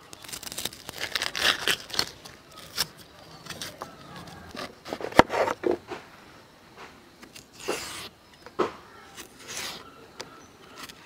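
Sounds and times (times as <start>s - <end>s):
knife scraping banana skin: 0.1s - 5.6s, 7.2s - 8.2s, 9.1s - 10.0s, 10.6s - 11.0s.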